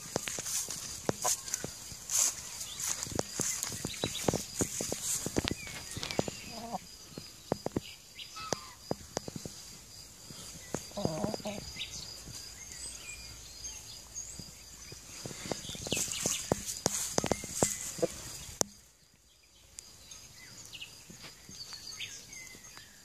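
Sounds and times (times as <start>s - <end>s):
chickens clucking: 0.0s - 6.9s, 10.4s - 12.4s, 15.2s - 18.7s
chicken calling: 6.1s - 6.8s, 10.9s - 11.8s.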